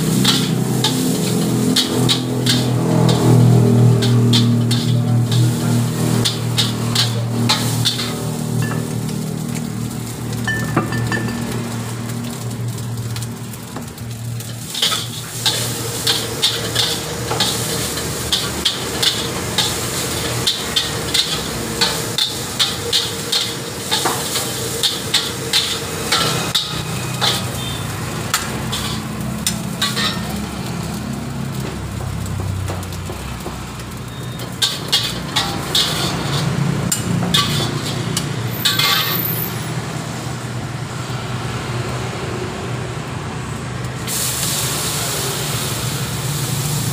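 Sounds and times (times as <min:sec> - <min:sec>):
food sizzling: 0:00.0 - 0:46.9
spatula clanking on a wok: 0:00.1 - 0:08.9, 0:14.5 - 0:30.4, 0:34.2 - 0:39.5.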